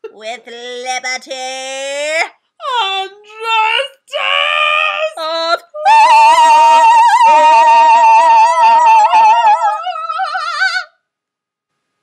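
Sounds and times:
woman singing operatic note: 0:05.2 - 0:10.9.

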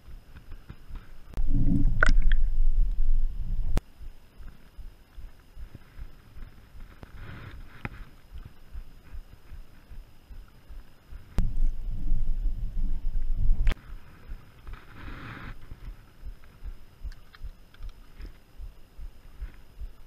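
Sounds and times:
low rumbling noise: 0:00.0 - 0:20.0
faint ticks: 0:03.8 - 0:11.5, 0:13.1 - 0:20.0
sharp clicks: 0:15.8 - 0:18.4.

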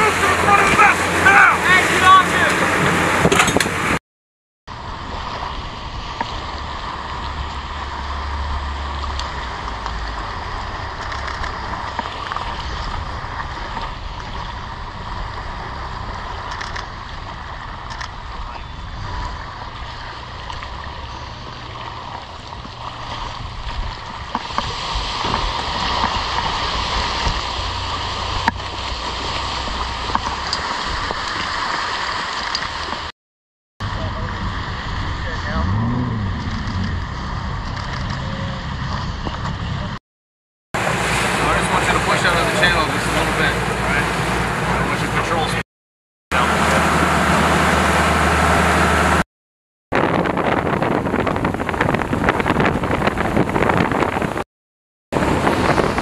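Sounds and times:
outboard motor running: 0:00.0 - 0:04.0, 0:04.7 - 0:33.1, 0:33.8 - 0:40.0, 0:40.8 - 0:45.6, 0:46.3 - 0:49.2
wind on microphone: 0:04.7 - 0:31.5, 0:33.8 - 0:40.0, 0:49.9 - 0:54.4, 0:55.2 - 0:56.0
water sloshing: 0:04.9 - 0:33.1, 0:40.8 - 0:45.5.

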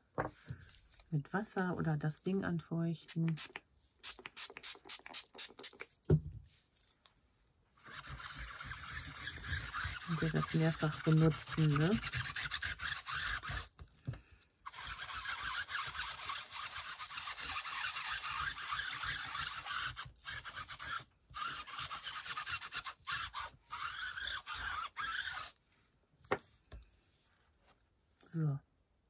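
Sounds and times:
tool rubbing over paper: 0:07.8 - 0:13.8, 0:14.6 - 0:25.6.

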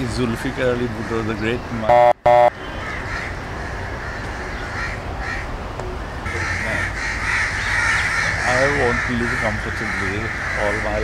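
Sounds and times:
crows cawing: 0:02.5 - 0:11.0.

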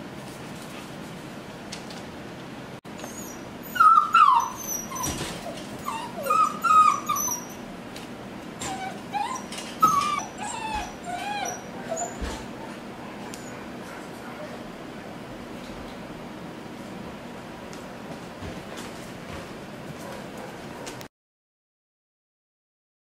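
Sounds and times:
puppies whining and whimpering: 0:03.0 - 0:07.8, 0:08.6 - 0:13.7.

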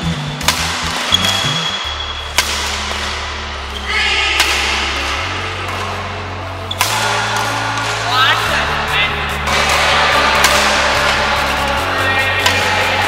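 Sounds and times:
background music with bass notes: 0:00.0 - 0:13.0
racket hitting shuttlecock: 0:00.3 - 0:06.1, 0:06.7 - 0:08.2, 0:09.4 - 0:11.8, 0:12.4 - 0:13.0.

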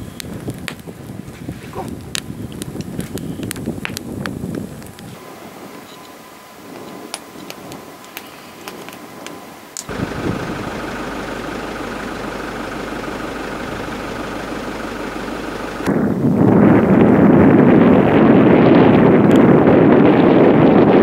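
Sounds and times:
vehicle engine running: 0:08.6 - 0:16.9.

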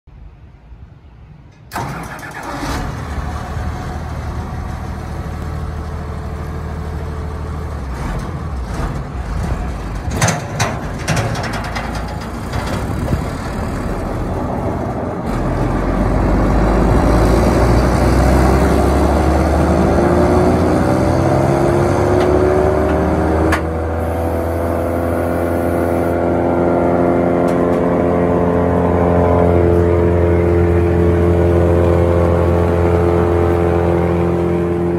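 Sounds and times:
chipper engine running: 0:01.8 - 0:34.9
rising machine whine: 0:15.7 - 0:34.9.

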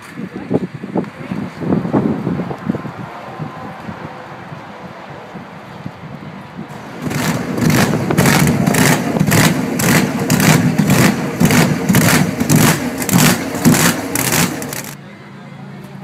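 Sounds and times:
engine revving in blasts: 0:06.7 - 0:15.0.

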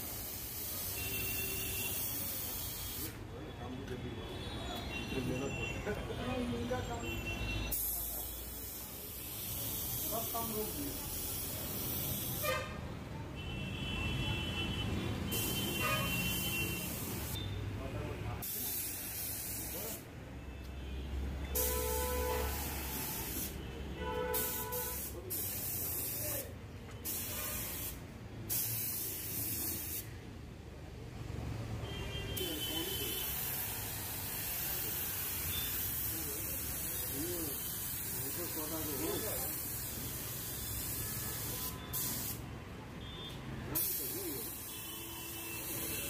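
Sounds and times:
spray gun hissing: 0:00.0 - 0:03.1, 0:18.4 - 0:20.0, 0:22.4 - 0:23.6, 0:24.4 - 0:30.1, 0:32.5 - 0:42.4, 0:43.8 - 0:46.0.

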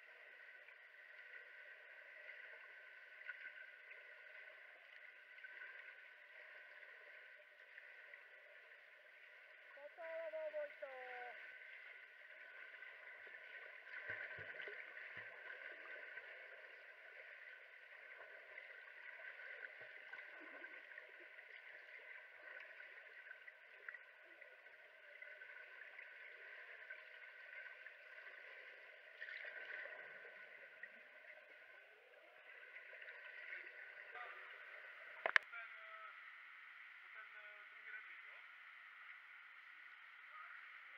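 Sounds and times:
soft low underwater thumps: 0:11.6 - 0:17.3.

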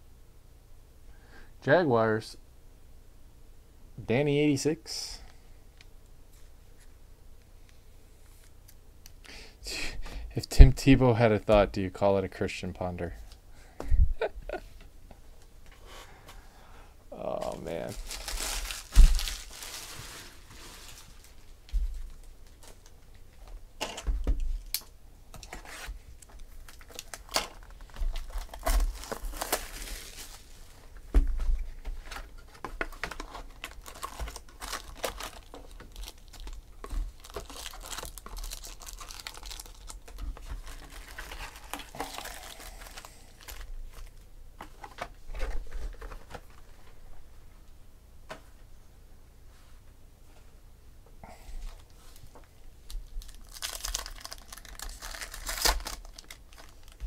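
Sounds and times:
foil card packs crinkling: 0:17.2 - 0:23.2, 0:25.4 - 0:46.8, 0:51.7 - 0:57.0
box being torn open: 0:53.4 - 0:57.0.

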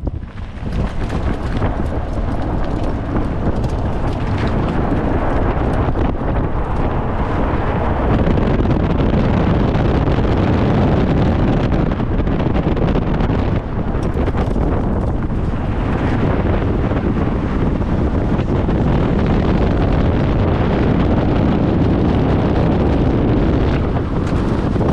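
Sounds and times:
tyre and road noise: 0:00.0 - 0:24.9
wind buffeting a microphone: 0:00.0 - 0:24.9.

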